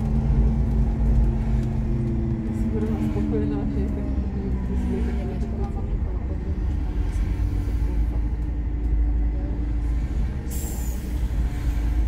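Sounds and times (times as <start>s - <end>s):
bus diesel engine rumbling: 0.0s - 12.0s.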